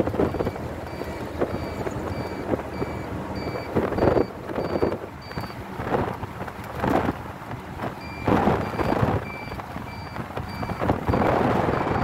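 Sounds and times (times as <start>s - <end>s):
vehicle road and wind noise: 0.0s - 12.0s
short electronic beeps: 0.2s - 5.6s, 8.0s - 12.0s.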